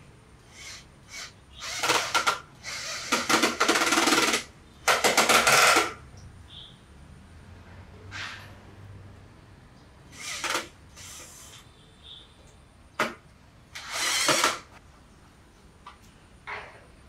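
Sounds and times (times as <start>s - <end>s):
cordless drill running in bursts: 0.5s - 5.9s, 10.1s - 11.5s, 13.8s - 14.7s.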